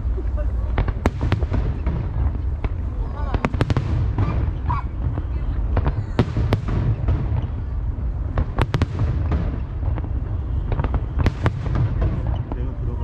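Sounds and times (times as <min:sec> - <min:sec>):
fireworks bursting: 0:00.0 - 0:13.0.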